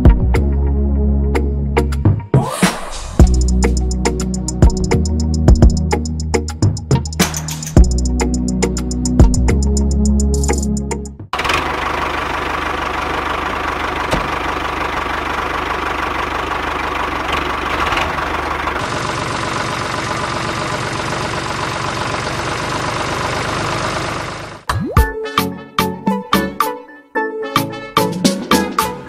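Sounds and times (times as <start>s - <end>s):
model tractor engine drone: 11.4s - 24.7s.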